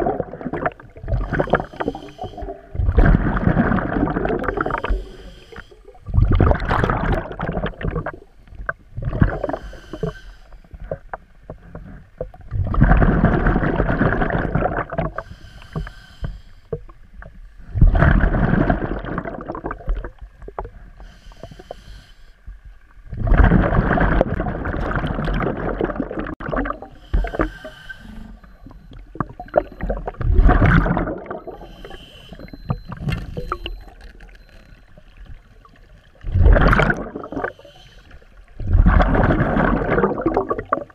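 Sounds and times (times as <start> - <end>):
exhaled bubbles rushing: 0.0 - 5.0, 6.0 - 8.3, 9.0 - 9.6, 12.2 - 15.2, 17.7 - 20.6, 23.1 - 27.5, 28.6 - 33.8, 35.8 - 37.6, 38.5 - 40.9
scuba regulator inhale hiss: 1.3 - 2.6, 4.6 - 6.0, 9.4 - 10.7, 15.2 - 16.8, 21.0 - 22.4, 27.0 - 28.4, 31.5 - 32.6, 37.3 - 38.3.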